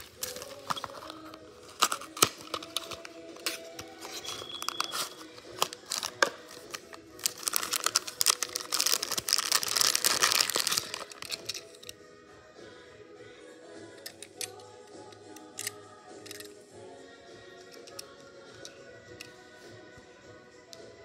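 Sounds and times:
plastic bag crinkling: 0.0 - 11.7.

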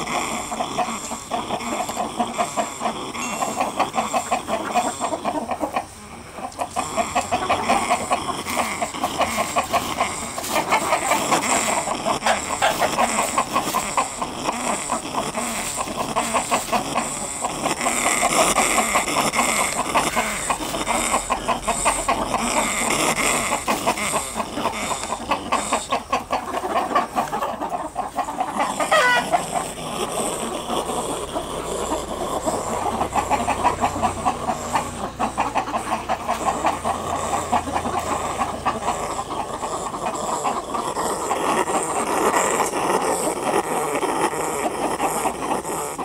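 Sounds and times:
chickens clucking: 0.0 - 46.0
higher chicken call: 0.0 - 46.0.

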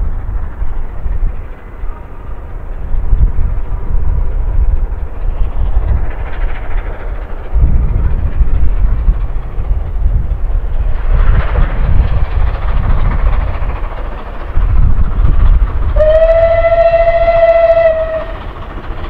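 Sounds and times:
steam locomotive exhaust beating: 0.0 - 19.0
steam whistle long note: 16.0 - 18.4.

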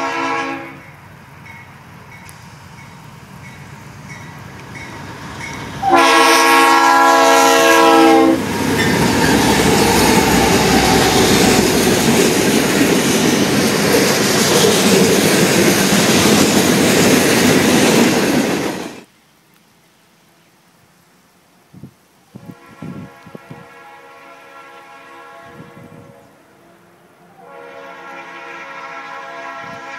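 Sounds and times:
train horn: 0.0 - 1.0, 5.8 - 12.3, 22.4 - 29.9
freight train rolling on rails: 0.0 - 19.1, 27.3 - 29.9.

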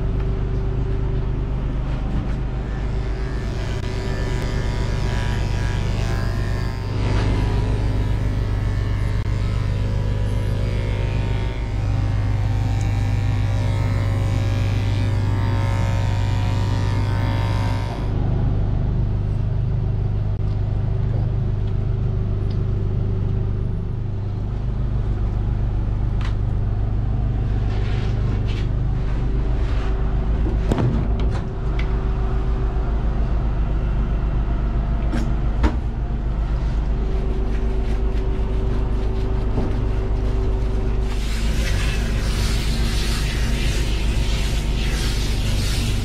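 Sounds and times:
electric clippers buzzing: 2.6 - 18.2, 41.0 - 46.0.

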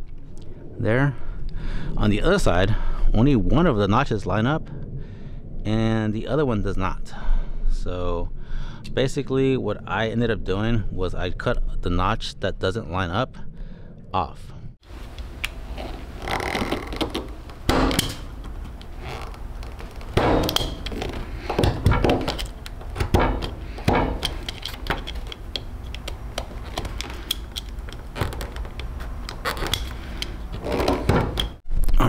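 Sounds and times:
plastic parts clicking and knocking: 19.7 - 31.6.

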